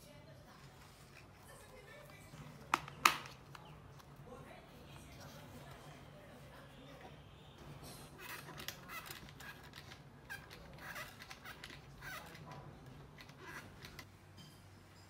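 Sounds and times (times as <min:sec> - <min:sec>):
plastic clock clicks and scrapes: 0:08.2 - 0:14.1.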